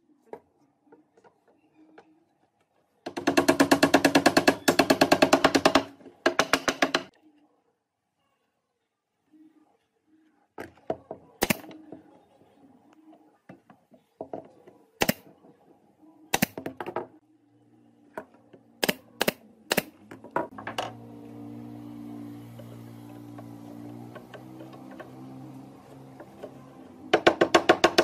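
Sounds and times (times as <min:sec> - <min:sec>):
power tool motor running: 0:20.9 - 0:27.0.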